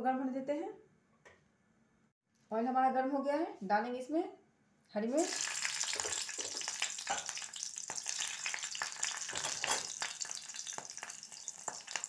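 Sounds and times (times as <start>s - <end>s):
chillies sizzling in hot oil: 5.2s - 12.0s.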